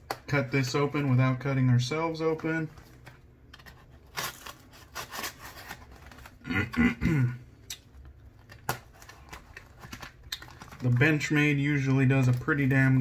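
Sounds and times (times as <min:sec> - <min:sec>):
knife cutting package: 0:03.7 - 0:06.3.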